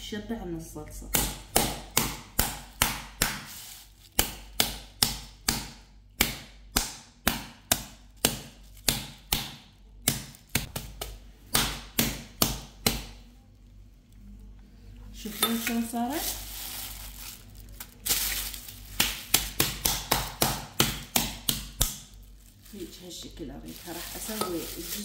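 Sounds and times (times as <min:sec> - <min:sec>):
meat mallet pounding chicken: 0:01.1 - 0:03.5, 0:04.1 - 0:13.2, 0:18.9 - 0:22.1.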